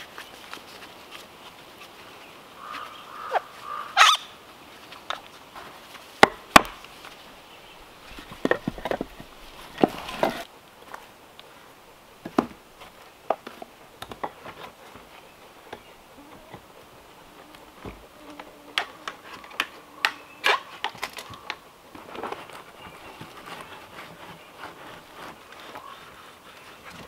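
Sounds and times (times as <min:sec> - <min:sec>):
wooden knocks and clicks: 0:08.1 - 0:10.4.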